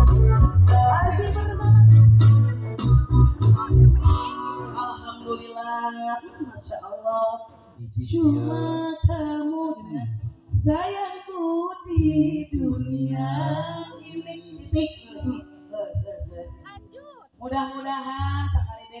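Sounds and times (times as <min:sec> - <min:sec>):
woman singing into microphone: 0:00.0 - 0:02.2, 0:04.0 - 0:19.0
live band playing: 0:00.0 - 0:05.6.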